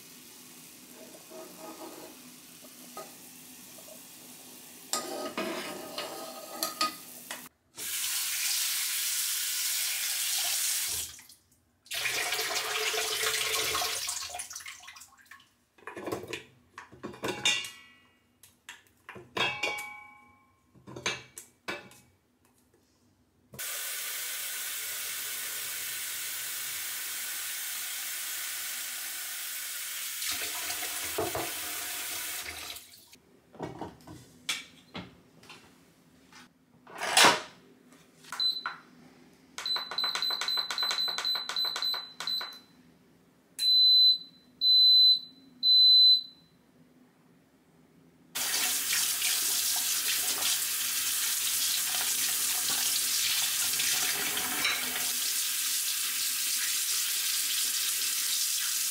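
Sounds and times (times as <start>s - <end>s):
pressure cooker beeping: 39.6s - 42.6s.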